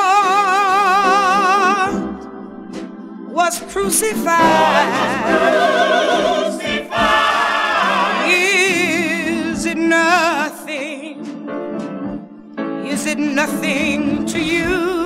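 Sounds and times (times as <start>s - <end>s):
vocal group singing in harmony: 3.6s - 11.0s.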